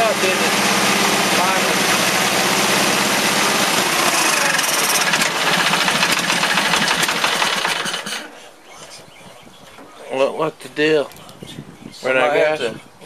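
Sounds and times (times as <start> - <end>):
lawn tractor engine running: 0.0 - 8.3.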